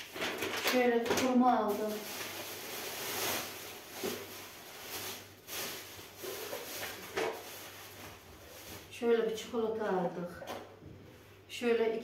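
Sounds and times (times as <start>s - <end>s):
plastic bag rustling: 0.0s - 9.5s.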